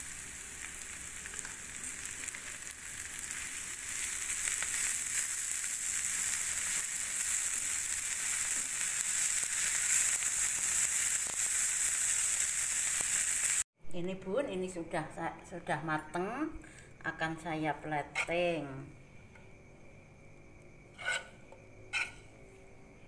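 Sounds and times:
noodles sizzling in a frying pan: 0.0 - 13.7
wooden spatula scraping and tapping: 21.0 - 22.3.

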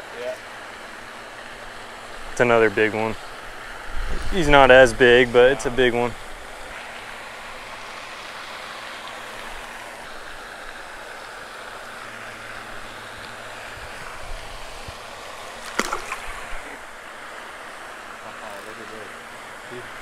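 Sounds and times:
rushing outdoor noise: 0.0 - 20.0
fish splashing into water: 14.4 - 16.9.

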